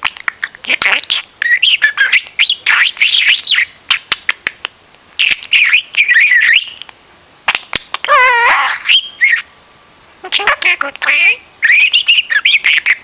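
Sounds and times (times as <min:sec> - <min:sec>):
budgerigar chattering: 0:00.1 - 0:04.6, 0:10.2 - 0:13.0.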